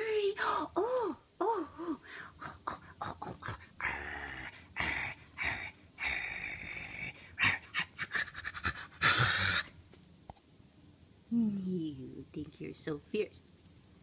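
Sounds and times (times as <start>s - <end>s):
cat hissing and spitting: 3.0s - 9.8s.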